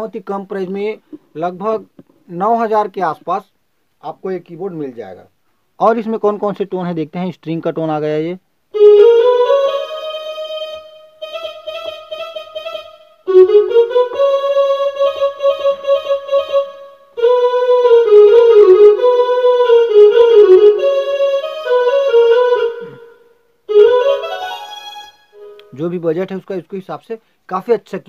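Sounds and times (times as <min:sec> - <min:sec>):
electronic keyboard string melody: 0:08.8 - 0:25.9.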